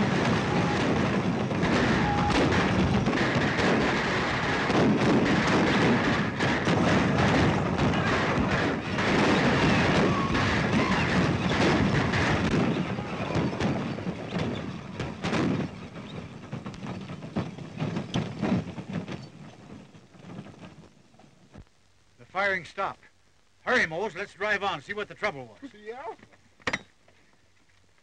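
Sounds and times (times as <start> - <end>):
gunshots: 0.0 - 18.7
horses galloping: 0.0 - 21.6
wagons rolling: 0.0 - 21.6.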